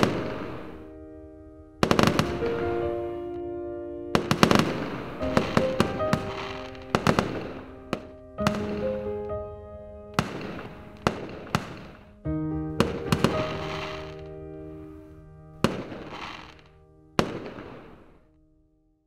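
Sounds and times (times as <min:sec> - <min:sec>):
fireworks bangs: 0:00.0 - 0:00.9, 0:01.8 - 0:03.0, 0:04.2 - 0:09.3, 0:10.2 - 0:12.2, 0:12.8 - 0:14.3, 0:15.6 - 0:18.3
soft background music: 0:00.0 - 0:18.8.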